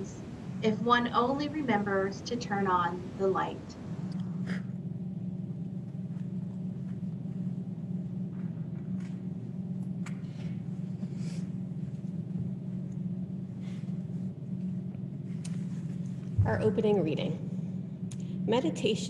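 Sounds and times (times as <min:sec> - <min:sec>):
low hum of room tone: 0:00.0 - 0:19.0.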